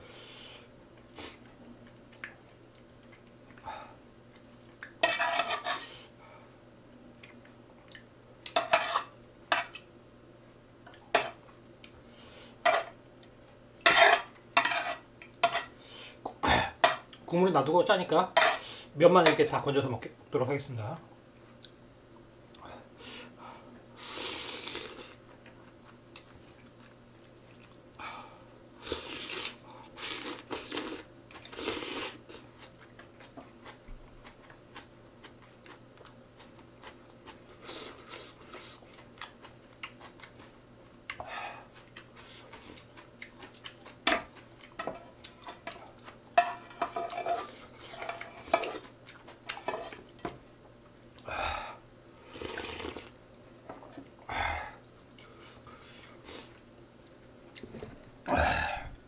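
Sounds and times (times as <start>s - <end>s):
person slurping noodles: 24.0s - 25.1s, 28.8s - 32.5s, 52.3s - 53.1s.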